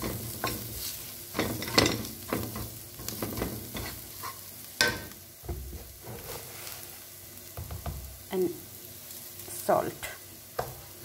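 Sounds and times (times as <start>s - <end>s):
spatula scraping a pan: 0.0s - 7.1s
onions sizzling in a frying pan: 0.0s - 11.0s.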